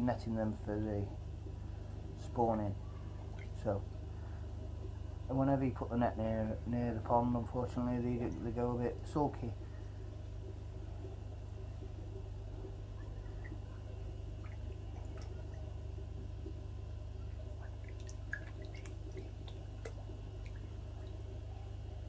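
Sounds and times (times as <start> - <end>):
steady low hum: 0.0 - 22.0
water dripping into pond: 3.2 - 5.2, 8.1 - 21.9.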